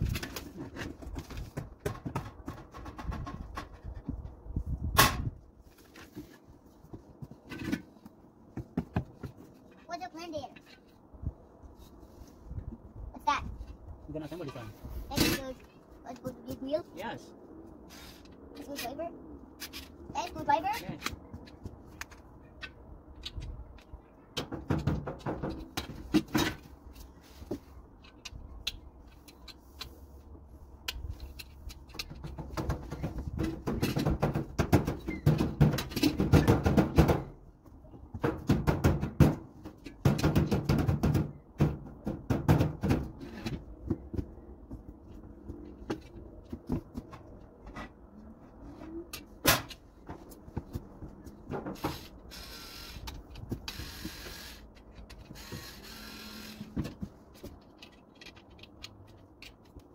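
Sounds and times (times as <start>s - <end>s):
grill parts knocking and clattering: 0.0s - 9.8s, 20.8s - 26.8s, 31.0s - 37.4s, 38.0s - 44.3s.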